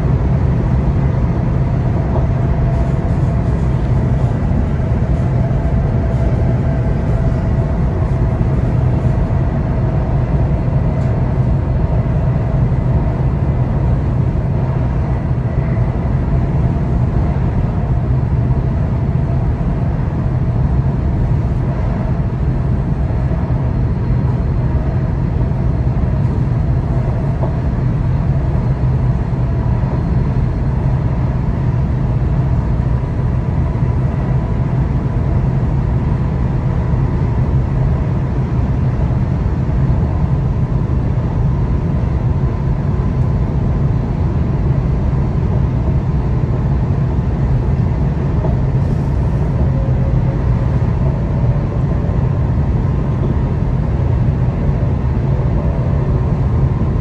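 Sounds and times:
electric train rumbling: 0.0s - 57.0s.

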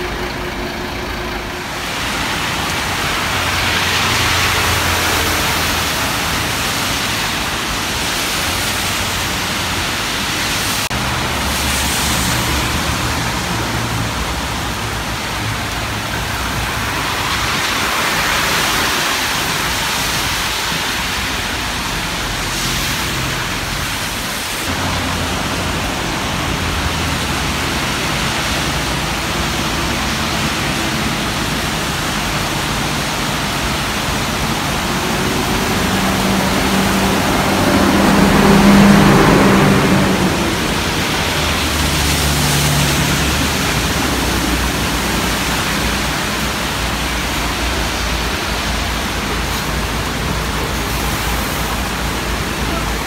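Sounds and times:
bus engine low hum: 0.0s - 53.0s
road traffic passing: 0.0s - 53.0s.

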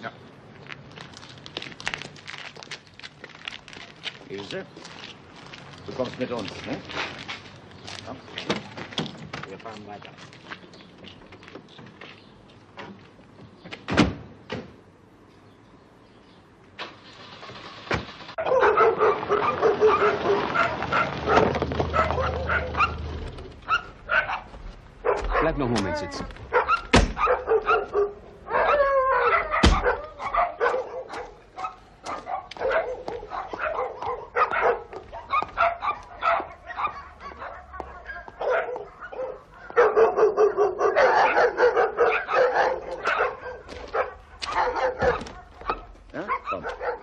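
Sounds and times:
dogs barking: 18.4s - 47.0s.

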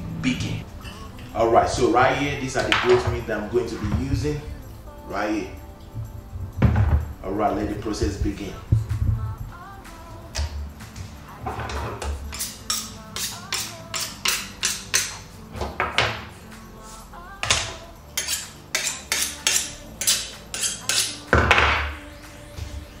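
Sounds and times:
background music: 0.0s - 23.0s
knife scraping on sharpener: 11.7s - 15.2s, 17.5s - 21.3s.

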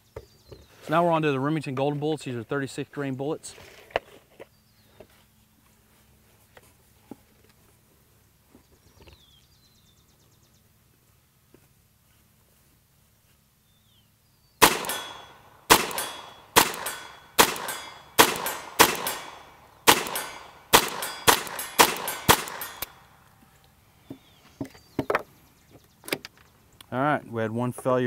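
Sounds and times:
pistol shots cracking: 14.6s - 23.2s.

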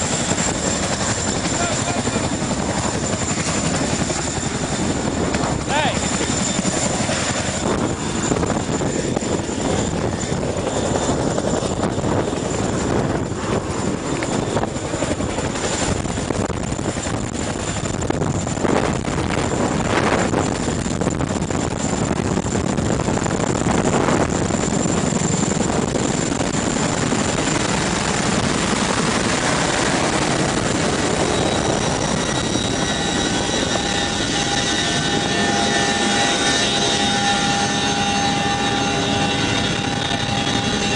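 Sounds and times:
helicopter rotors and engines: 0.0s - 40.9s
machinery whining tones: 24.3s - 40.9s.

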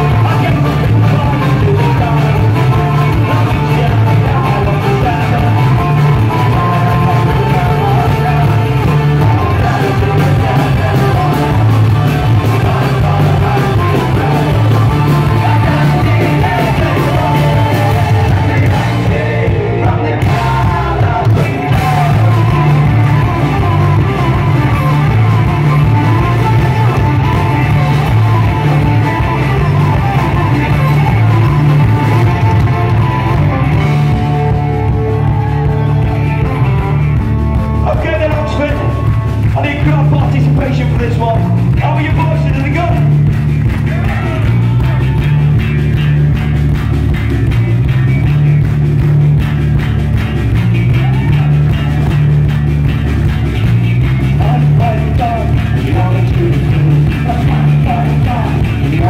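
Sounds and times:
shouted singing: 0.0s - 36.9s, 43.6s - 45.5s, 50.9s - 52.0s
bass: 0.0s - 59.0s
drums: 0.0s - 59.0s
electric and acoustic guitars: 0.0s - 59.0s.

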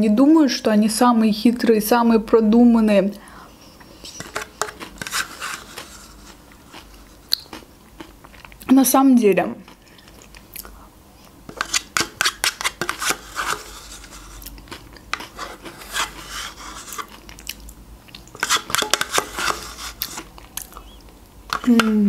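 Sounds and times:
soft eating sounds: 3.5s - 8.8s, 9.6s - 22.0s
spoon scraping plastic cup: 4.0s - 6.9s, 11.5s - 14.5s, 15.1s - 17.2s, 18.3s - 20.3s.

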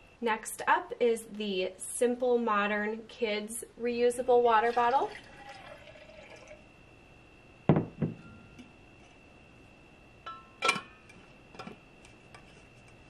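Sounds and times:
faint high whine: 0.0s - 13.0s
objects knocking on countertop: 7.7s - 8.2s.

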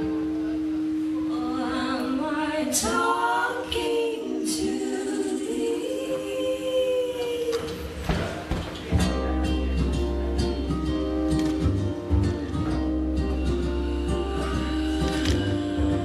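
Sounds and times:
voices singing in harmony: 1.3s - 8.0s, 13.4s - 16.0s
ukulele strumming: 8.8s - 16.0s
strummed acoustic guitar: 9.0s - 16.0s.

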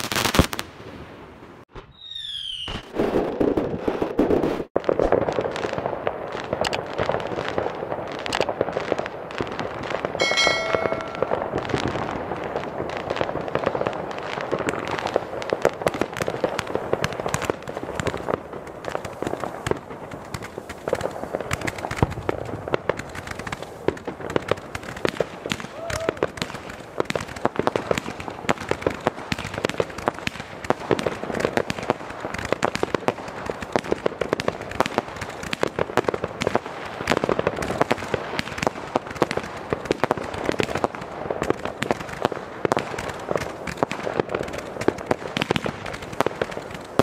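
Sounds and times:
fireworks bangs and crackling: 0.0s - 47.0s
firework whistle falling in pitch: 1.9s - 2.9s, 10.2s - 11.8s.

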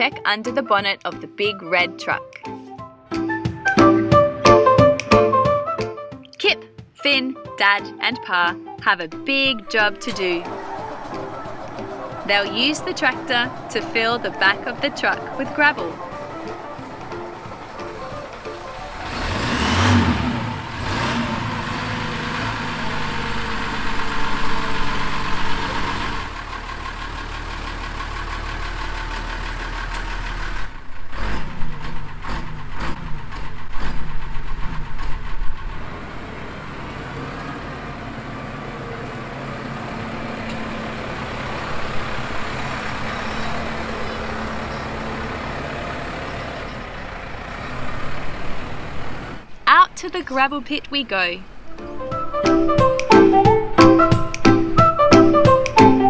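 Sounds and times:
truck engine idling: 8.1s - 49.9s
engine clattering: 9.7s - 49.5s.

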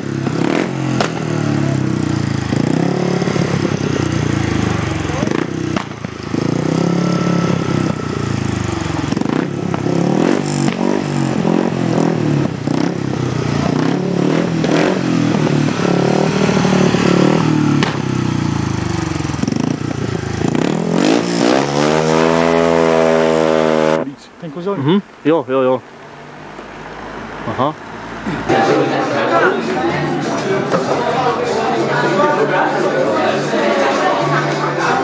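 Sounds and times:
motorcycle engine revving: 0.0s - 25.2s.

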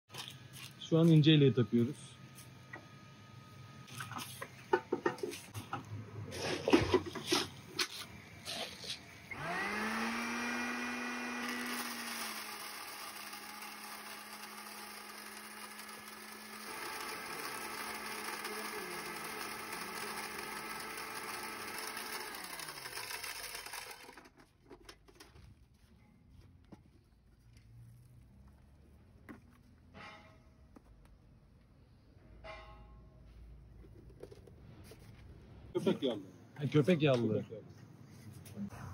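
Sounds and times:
electric grain mill running: 9.2s - 25.2s
corn cracking in mill: 9.4s - 25.6s.

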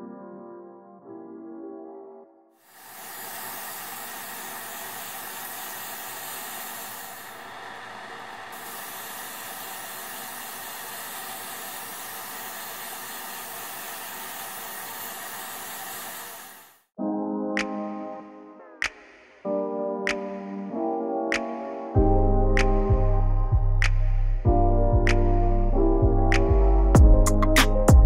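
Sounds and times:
airbrush spraying hiss: 2.6s - 16.9s.

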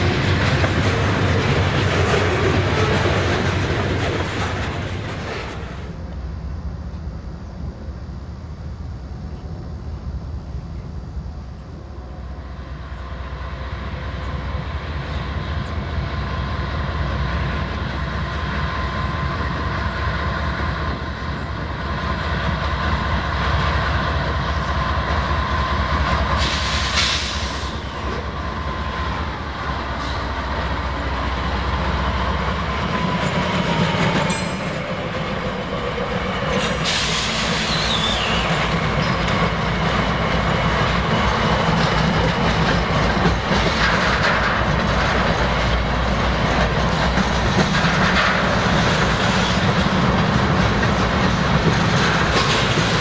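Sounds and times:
steel wheels clattering on rails: 0.0s - 5.9s, 15.0s - 53.0s
diesel locomotive engines drumming: 0.0s - 53.0s
wheels screeching: 25.4s - 53.0s.

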